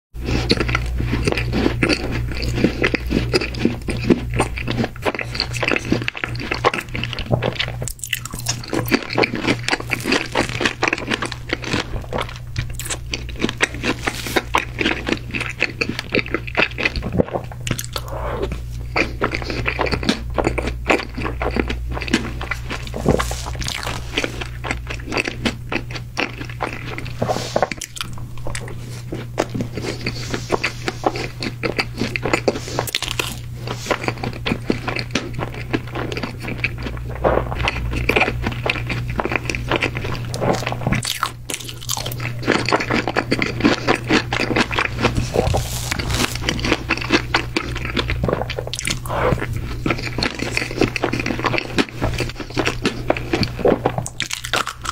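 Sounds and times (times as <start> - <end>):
biting cake: 0.2 - 54.9
wet chewing: 0.2 - 54.9.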